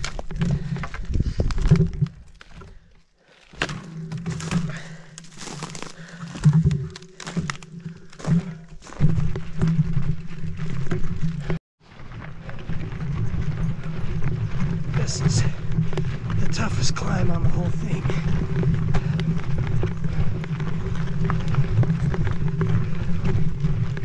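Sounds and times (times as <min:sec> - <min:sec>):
bike knocking against logs: 0:00.0 - 0:11.5, 0:18.1 - 0:24.0
bike tyres rolling on rocky trail: 0:00.0 - 0:24.0.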